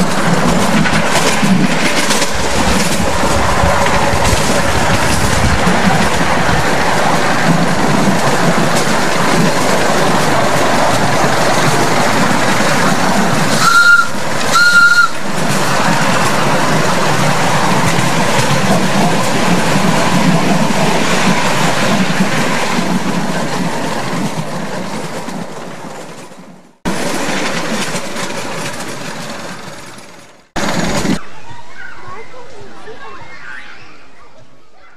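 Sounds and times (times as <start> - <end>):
miniature steam locomotive running: 0.0 - 31.2
steam whistle blasts: 13.6 - 15.2.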